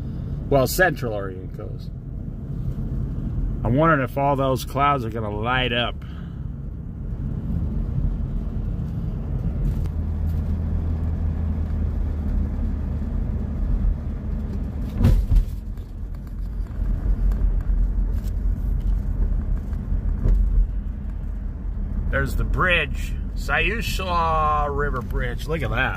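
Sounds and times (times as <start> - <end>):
car engine and tyres rumbling: 0.0 - 25.9
sharp thump: 14.8 - 15.7.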